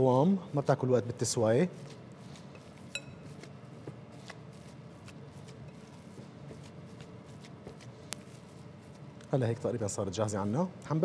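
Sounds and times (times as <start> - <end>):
hands squishing minced meat: 1.5 - 9.4.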